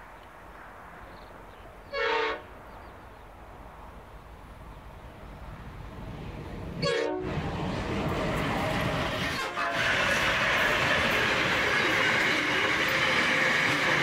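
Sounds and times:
train rumble: 0.0 - 14.0
diesel locomotive horn blasts: 1.9 - 2.5, 6.8 - 7.4, 9.2 - 11.9.

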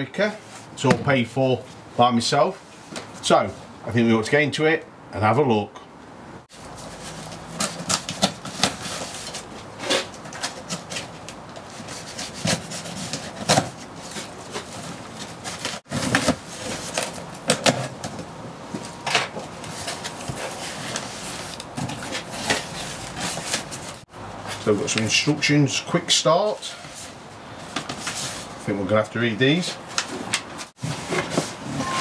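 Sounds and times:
cardboard flaps rustling: 6.6 - 24.7
tape tearing: 7.0 - 14.7.

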